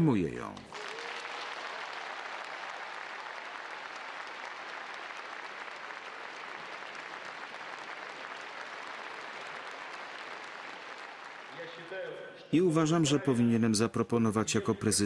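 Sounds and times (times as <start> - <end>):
audience applause: 0.6 - 12.2.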